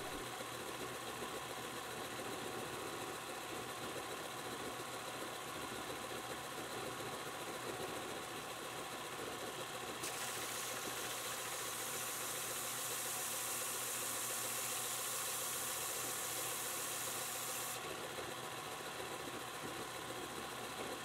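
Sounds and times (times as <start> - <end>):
belt sander motor hum: 0.0 - 0.2, 10.3 - 18.4.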